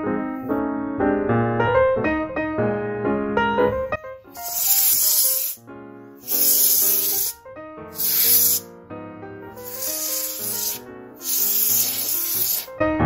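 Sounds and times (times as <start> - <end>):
compressed air hissing bursts: 4.4 - 5.6, 6.2 - 8.7, 9.6 - 12.7.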